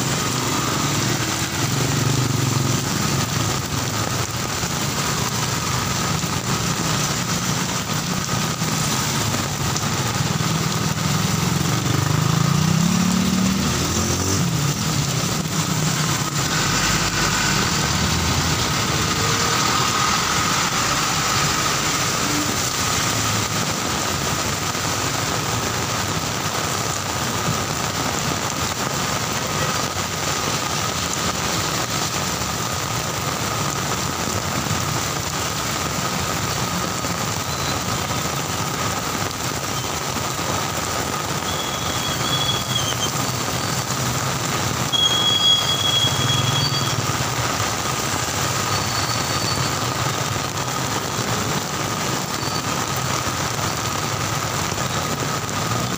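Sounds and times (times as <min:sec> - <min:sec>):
car and motorcycle engines: 0:00.0 - 0:55.9
heavy rain on wet road: 0:00.0 - 0:55.9
vehicle passing closer: 0:11.4 - 0:23.6.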